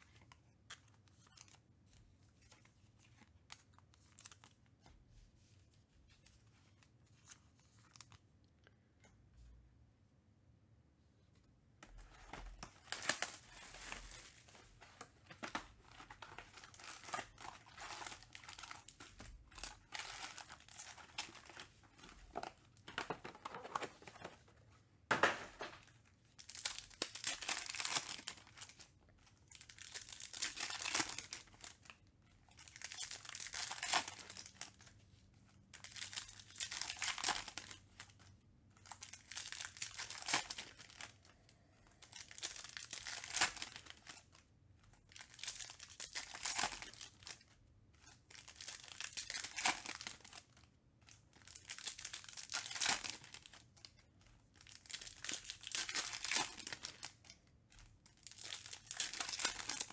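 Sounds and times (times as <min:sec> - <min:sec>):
foil wrappers crinkling and tearing: 0:26.4 - 0:34.8, 0:38.9 - 0:41.3, 0:45.1 - 0:59.9.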